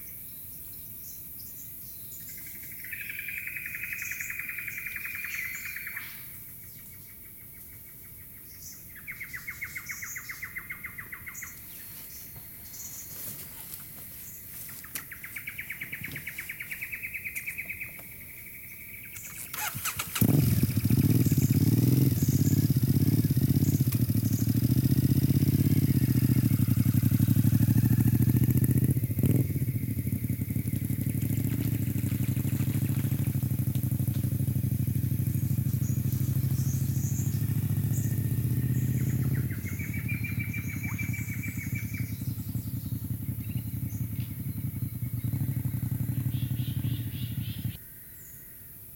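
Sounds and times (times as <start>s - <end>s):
insects trilling: 0.0s - 48.8s
motorcycle engine running: 8.9s - 47.8s
short bird chirps: 14.2s - 20.2s, 35.7s - 48.5s.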